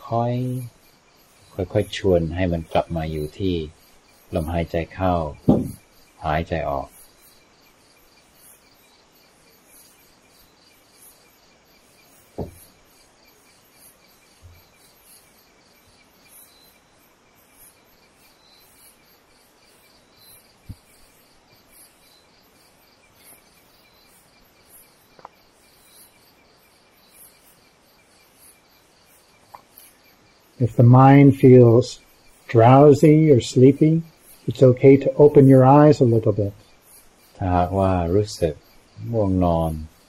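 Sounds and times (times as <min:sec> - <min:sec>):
crickets chirping: 0:00.0 - 0:40.0
soft knocks: 0:05.4 - 0:05.8, 0:12.4 - 0:12.7.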